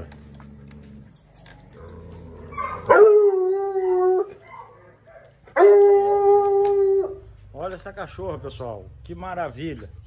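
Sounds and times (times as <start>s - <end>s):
dog howling: 1.7s - 4.8s, 5.6s - 7.3s.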